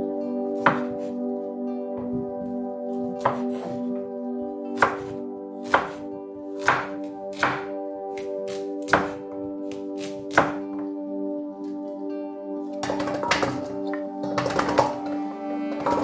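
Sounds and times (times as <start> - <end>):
background music: 0.0 - 16.0
knife chopping on wooden board: 0.6 - 1.1, 3.2 - 3.8, 4.8 - 6.0, 6.6 - 10.6.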